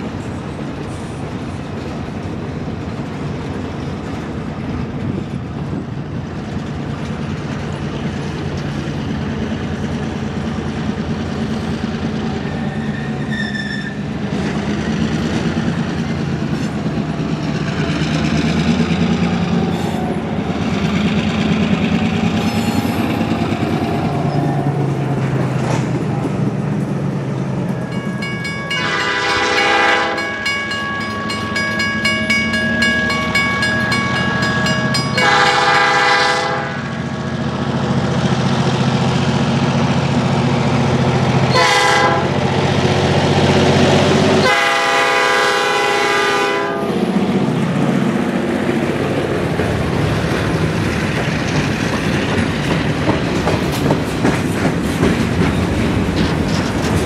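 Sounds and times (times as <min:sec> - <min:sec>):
train wheels clicking over rail joints: 0:00.0 - 0:36.0, 0:47.1 - 0:57.0
locomotive engine rumble: 0:00.0 - 0:57.0
locomotive air horn: 0:28.7 - 0:30.4, 0:35.1 - 0:36.9, 0:41.5 - 0:42.4, 0:44.4 - 0:47.0.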